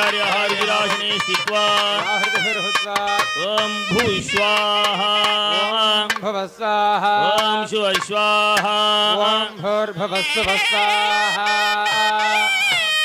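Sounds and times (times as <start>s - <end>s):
ornamented melodic line: 0.0s - 6.2s.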